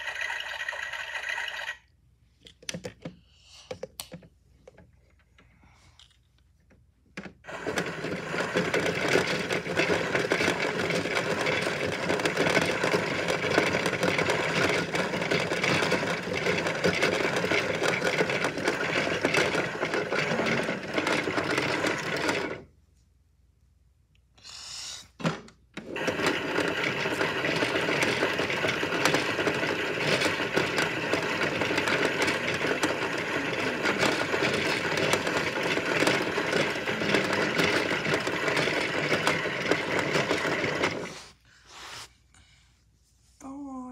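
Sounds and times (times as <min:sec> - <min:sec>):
toy motor whirring: 0:00.0 - 0:01.9, 0:07.5 - 0:22.6, 0:26.0 - 0:41.4.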